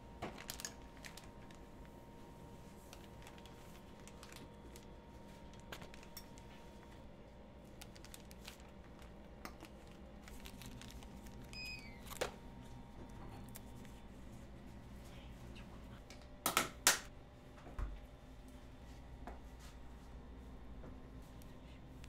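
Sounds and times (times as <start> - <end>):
plastic bags crinkling: 0.2 - 1.8, 2.8 - 6.5, 7.6 - 12.4.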